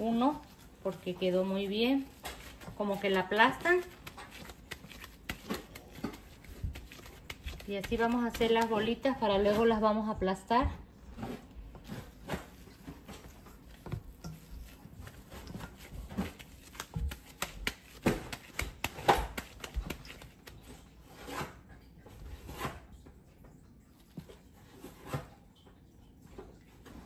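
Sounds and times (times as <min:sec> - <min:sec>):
hands kneading raw meat: 0:00.0 - 0:21.5.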